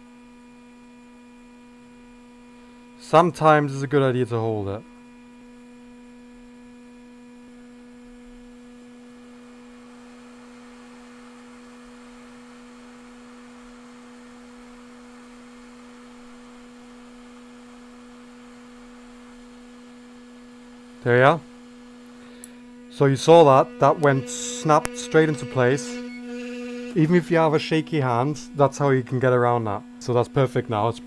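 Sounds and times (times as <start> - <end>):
hot air station blowing: 9.0 - 29.0.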